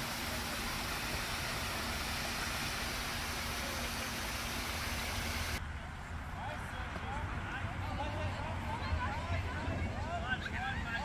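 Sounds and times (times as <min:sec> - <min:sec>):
water splashing into a pond: 0:00.0 - 0:05.6.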